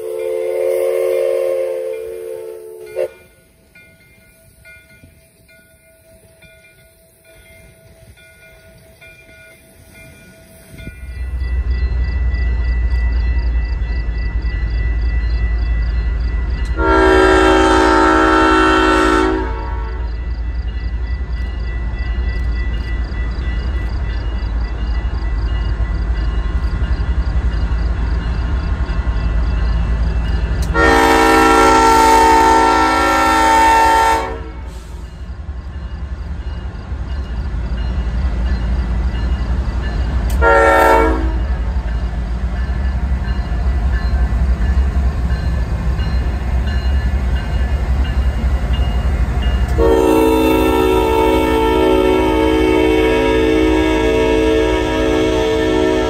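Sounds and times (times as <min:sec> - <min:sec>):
train air horn blasts: 0:00.0 - 0:03.4, 0:16.7 - 0:20.1, 0:30.6 - 0:35.2, 0:40.3 - 0:41.7, 0:49.7 - 0:56.0
diesel locomotives rumbling: 0:00.0 - 0:56.0.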